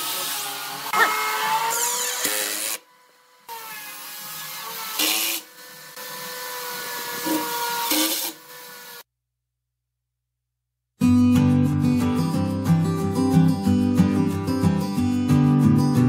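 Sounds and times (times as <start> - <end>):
cordless drill driving screws into wood: 3.6 - 9.0.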